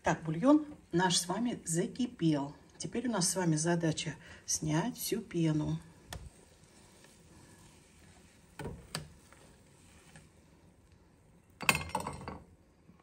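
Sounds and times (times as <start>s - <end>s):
faint steady background noise: 0.0s - 13.0s.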